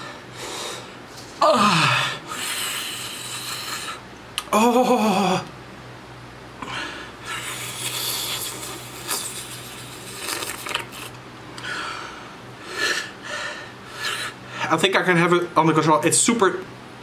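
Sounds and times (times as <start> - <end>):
man breathing hard through mouth: 1.6 - 4.0, 11.6 - 14.7.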